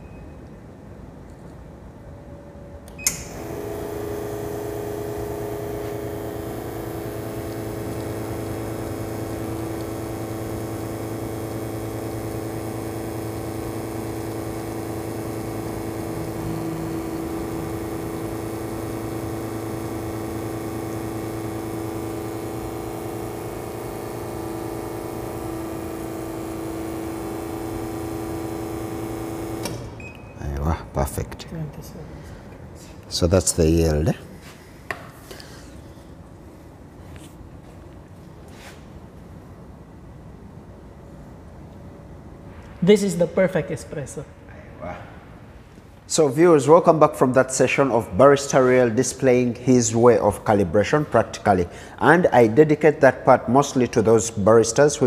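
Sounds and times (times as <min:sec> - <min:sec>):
espresso machine pump humming: 0:03.1 - 0:30.0.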